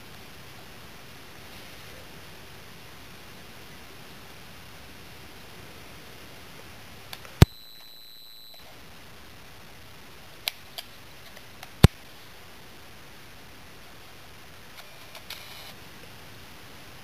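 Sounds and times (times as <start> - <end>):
high beep: 7.4 - 8.6.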